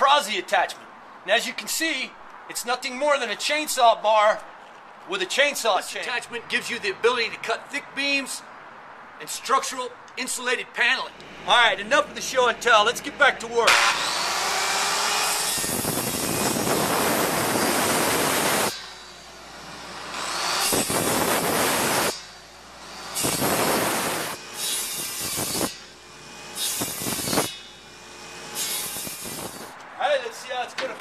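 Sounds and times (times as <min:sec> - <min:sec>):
circular saw cutting wood: 0:10.9 - 0:29.7.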